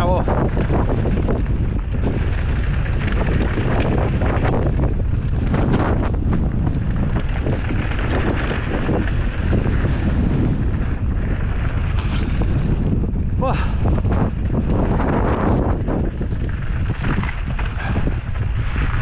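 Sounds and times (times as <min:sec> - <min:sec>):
tyres rushing on loose gravel: 0:00.0 - 0:13.3
bike knocks and rattles: 0:00.0 - 0:19.0
wind buffeting microphone: 0:00.0 - 0:19.0.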